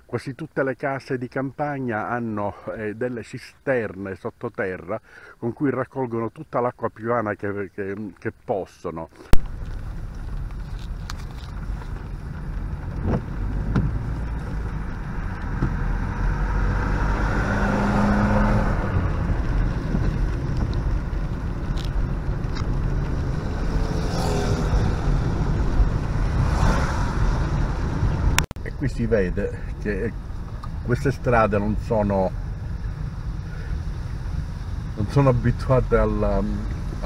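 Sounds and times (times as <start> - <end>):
engine and tyres on wet asphalt: 9.2 - 37.0
rain on windscreen: 9.3 - 28.5, 29.6 - 37.0.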